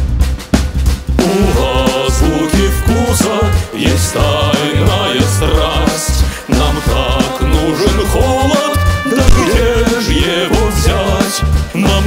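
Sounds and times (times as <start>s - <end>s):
upbeat backing music: 0.0s - 12.0s
pitched melody line: 7.6s - 10.1s
sharp drum hits: 9.1s - 9.8s.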